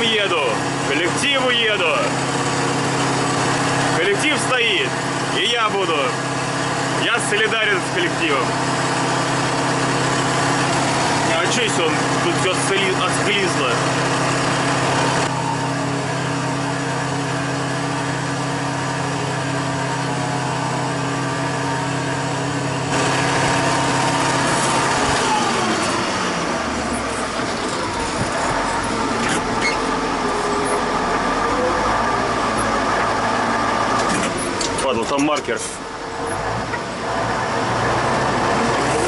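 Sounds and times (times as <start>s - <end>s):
tractor diesel engine running: 0.0s - 39.0s.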